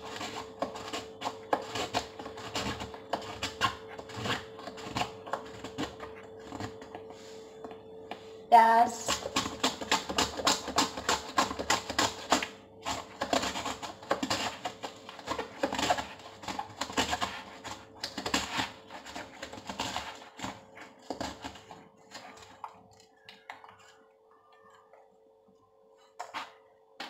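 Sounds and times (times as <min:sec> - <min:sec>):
onion sliced on plastic cutter: 0:00.0 - 0:06.8, 0:09.0 - 0:21.6.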